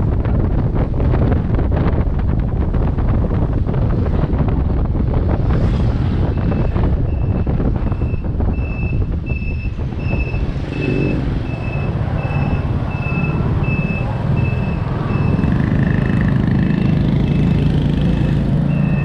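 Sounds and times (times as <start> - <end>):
wind and road noise: 0.0 - 19.0
steady high beep: 8.0 - 15.5, 18.7 - 19.0.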